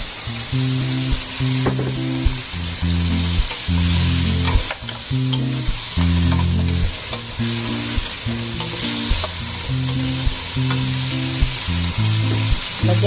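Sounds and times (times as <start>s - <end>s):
background music with faint beat: 0.0s - 13.0s
meat sizzling in a wok: 0.0s - 13.0s.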